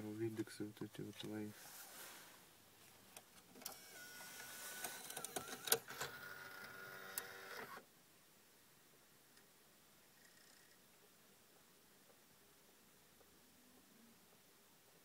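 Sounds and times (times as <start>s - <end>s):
disc mechanism clicks: 3.6s - 7.7s
disc mechanism motor whine: 3.6s - 7.8s.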